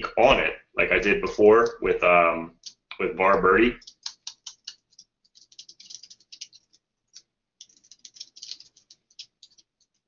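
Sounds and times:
computer keyboard typing: 2.6 - 10.0.

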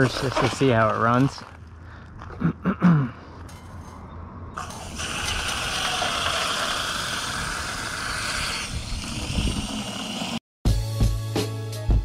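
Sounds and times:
water rushing from hose: 4.6 - 10.4.

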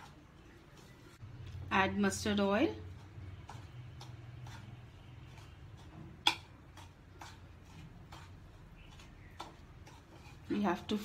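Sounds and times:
spoon scraping a bowl: 2.8 - 11.0.

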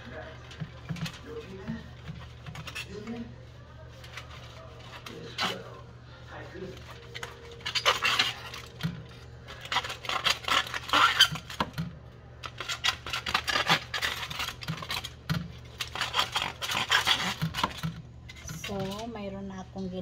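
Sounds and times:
foil crinkling: 0.0 - 19.2
low steady hum: 0.0 - 20.0
knife scraping fish scales: 15.8 - 17.8.

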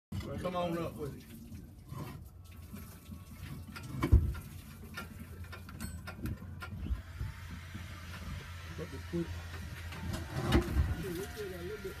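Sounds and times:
metal tools clicking and knocking: 4.9 - 6.8.

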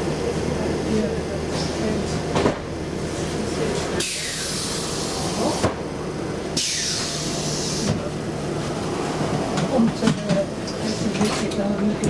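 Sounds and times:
tram humming: 0.0 - 12.0
air brake hiss: 4.0 - 5.7, 6.6 - 7.9.

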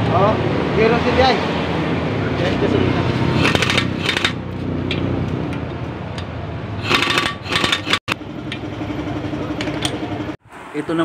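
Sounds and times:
pneumatic impact wrench rattling: 3.4 - 5.0, 6.8 - 8.2.

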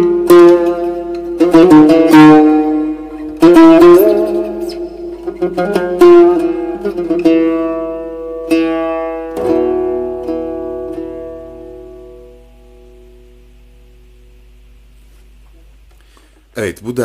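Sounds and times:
oud plucked with plectrum: 0.0 - 16.3.

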